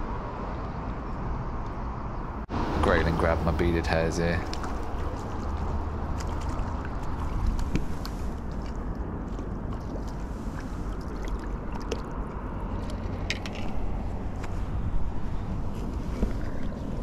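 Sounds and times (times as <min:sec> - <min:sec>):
wind rumble on microphone: 0:00.0 - 0:17.0
handling clicks and rustles: 0:11.8 - 0:17.0.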